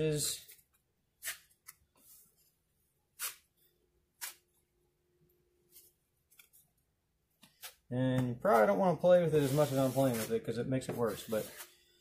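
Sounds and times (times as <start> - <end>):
knife scraping joint compound: 0.4 - 2.3, 3.1 - 3.5, 4.2 - 4.5, 7.4 - 11.8.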